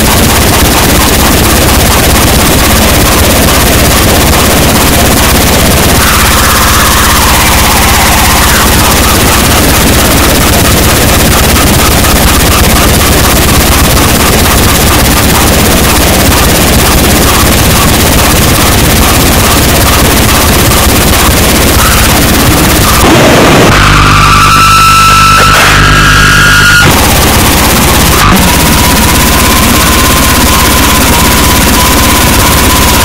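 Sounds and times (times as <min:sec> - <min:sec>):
steady high tone: 0:00.0 - 0:18.6, 0:19.3 - 0:33.0
distorted noise wall: 0:00.0 - 0:33.0
fast pulsing: 0:00.0 - 0:33.0.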